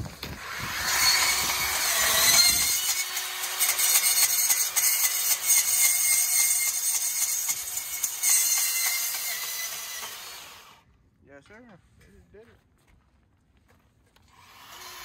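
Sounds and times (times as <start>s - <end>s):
bandsaw cutting metal: 0.2s - 10.8s, 14.4s - 15.0s.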